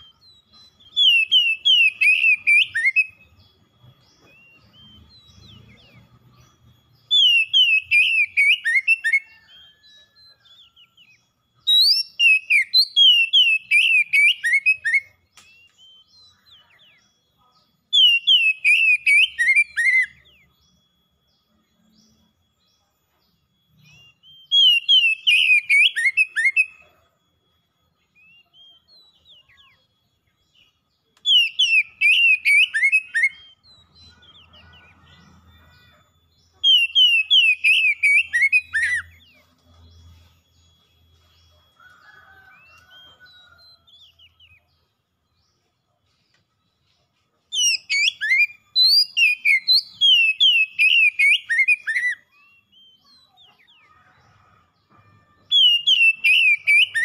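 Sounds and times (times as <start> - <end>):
bird singing whistled phrases: 0.0 - 3.4, 6.9 - 17.2, 23.8 - 26.9, 28.0 - 35.0, 35.8 - 41.3, 47.5 - 54.5, 55.4 - 57.0.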